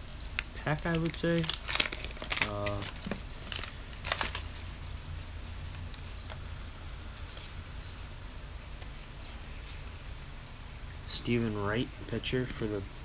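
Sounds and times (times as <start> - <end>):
trading cards rustling: 0.0 - 8.2
steady low hum: 0.0 - 13.0
card pack wrapper crinkling: 0.1 - 4.9.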